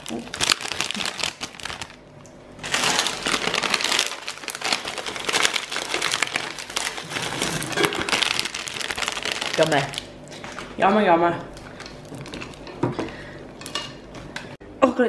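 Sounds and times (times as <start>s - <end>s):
plastic packet crinkling: 0.0s - 10.8s
candy eggs clattering into saucepan: 3.4s - 9.6s.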